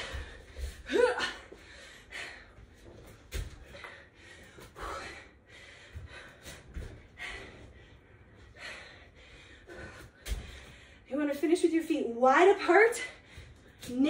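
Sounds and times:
woman breathing hard: 0.0s - 11.1s.

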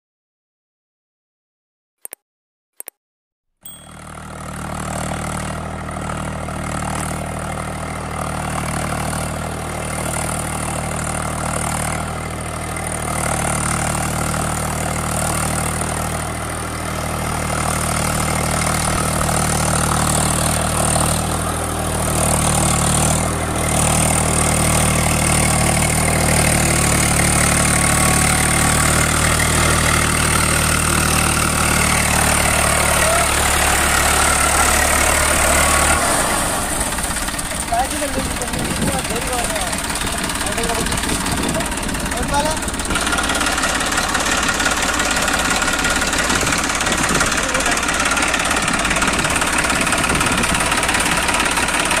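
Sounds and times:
tractor diesel engine running: 3.7s - 52.0s.

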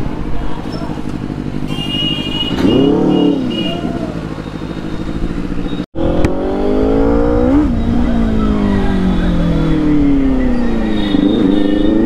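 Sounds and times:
motorcycle engine revving: 1.2s - 12.0s.

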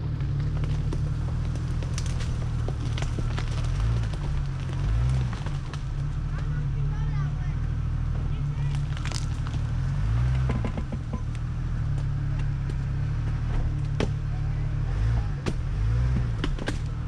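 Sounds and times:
vehicle engine running low: 0.0s - 17.0s
vehicle knocks and clunks over rocks: 0.0s - 17.0s.

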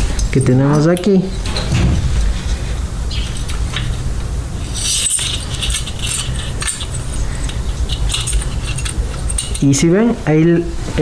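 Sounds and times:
low background hum: 0.0s - 11.0s
metallic clinking and jingling: 4.6s - 9.8s.

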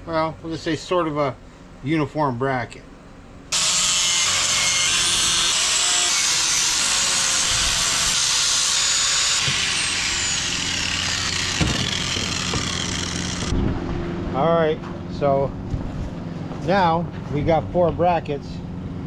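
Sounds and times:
angle grinder grinding metal: 3.5s - 13.5s.

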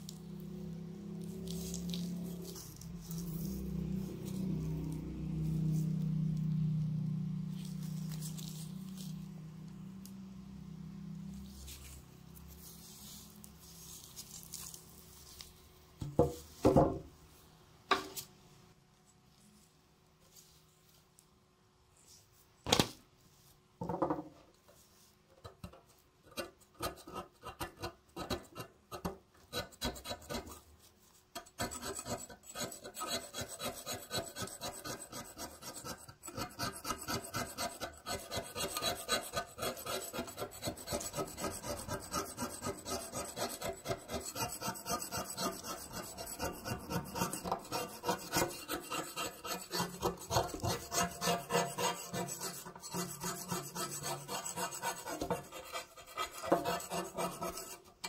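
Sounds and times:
stick scraping rust off metal: 31.4s - 58.0s.

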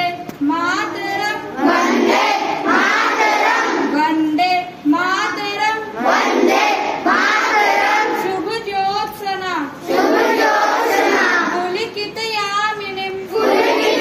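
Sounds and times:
children singing a prayer: 1.0s - 4.0s, 6.0s - 8.3s, 9.8s - 11.6s, 13.2s - 14.0s.

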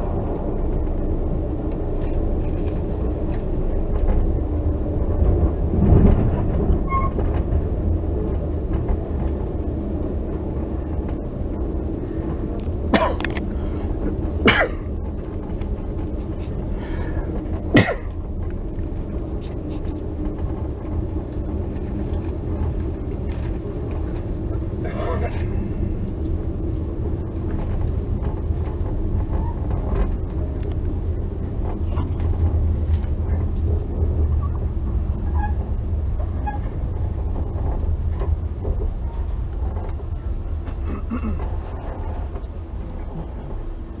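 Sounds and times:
train rumbling inside carriage: 0.0s - 44.0s.

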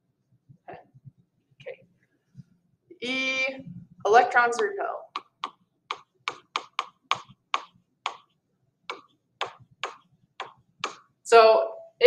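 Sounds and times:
stylus tapping on tablet screen: 4.5s - 11.2s.

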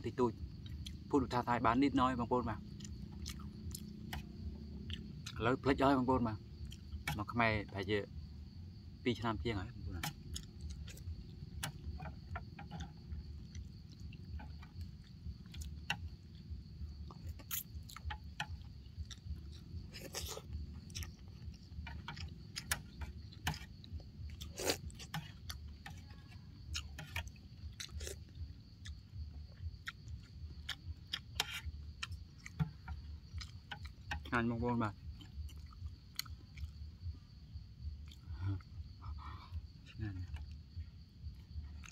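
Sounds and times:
slurping noodles: 24.4s - 24.9s.

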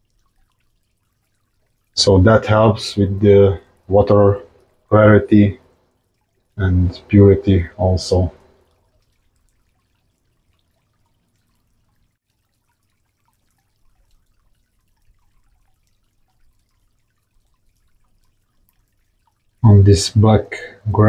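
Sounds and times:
small water drips: 0.0s - 21.0s.

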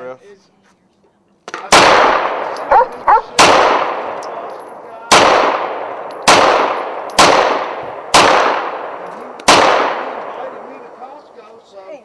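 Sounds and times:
pistol shots echoing: 1.5s - 10.7s.

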